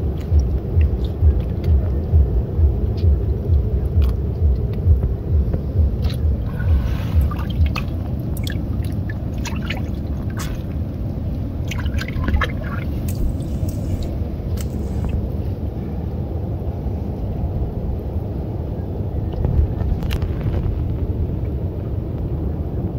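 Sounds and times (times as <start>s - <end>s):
water splashes and drips: 0.0s - 2.1s, 5.9s - 15.3s
low rumble: 0.0s - 22.9s.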